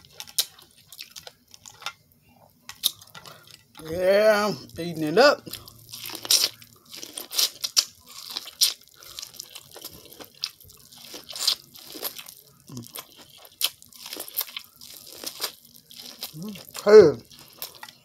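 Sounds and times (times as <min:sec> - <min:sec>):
corn on the cob crunching: 0:00.0 - 0:01.9, 0:04.8 - 0:18.0.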